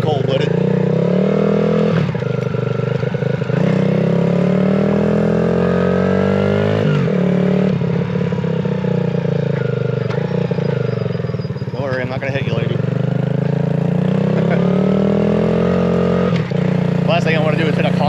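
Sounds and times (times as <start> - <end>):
small motorbike engine running: 7.7 - 18.0.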